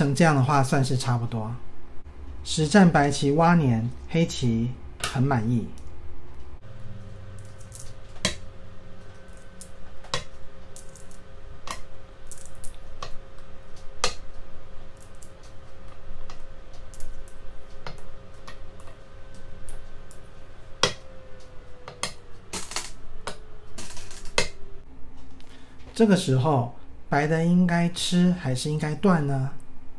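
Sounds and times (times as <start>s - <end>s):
faint steady hum: 0.0s - 29.9s
game stones clacking on board: 7.3s - 8.4s, 9.2s - 13.2s, 15.0s - 15.5s.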